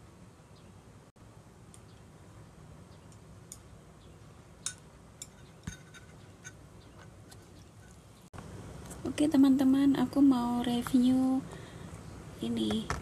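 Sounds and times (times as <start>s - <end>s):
utensils clinking against a bowl: 4.6s - 8.0s.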